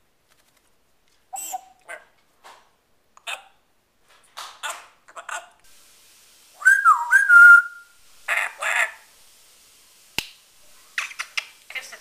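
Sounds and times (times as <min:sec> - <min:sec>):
parrot whistling: 0:06.6 - 0:08.0.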